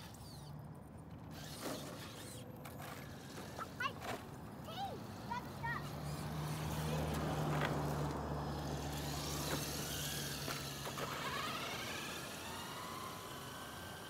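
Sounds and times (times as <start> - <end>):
electric motor whining: 1.3 - 4.1, 5.0 - 14.0.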